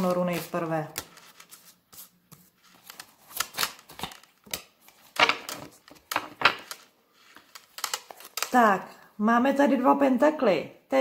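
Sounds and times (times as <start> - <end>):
cards being shuffled: 0.0 - 8.6.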